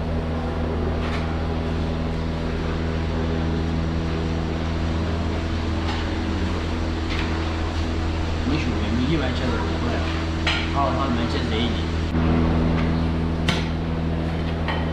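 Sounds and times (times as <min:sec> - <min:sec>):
machine hum with hiss: 0:00.0 - 0:14.9.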